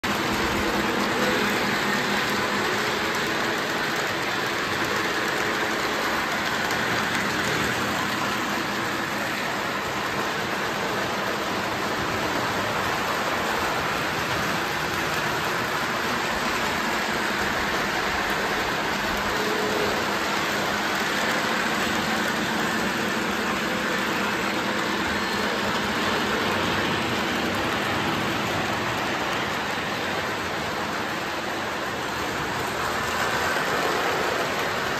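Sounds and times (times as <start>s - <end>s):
model trains whirring rumble: 0.0s - 34.9s.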